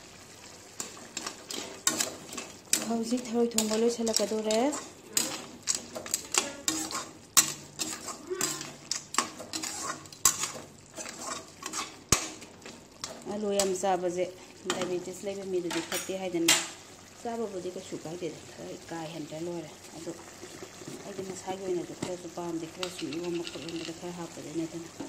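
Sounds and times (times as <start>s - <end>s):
metal ladle clinking and scraping pan: 0.8s - 13.8s, 22.8s - 24.1s.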